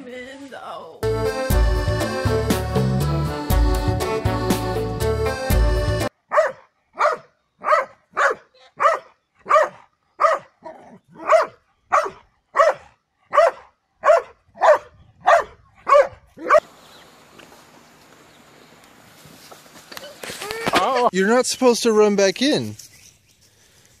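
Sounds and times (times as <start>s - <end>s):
large dog barking: 6.3s - 16.6s.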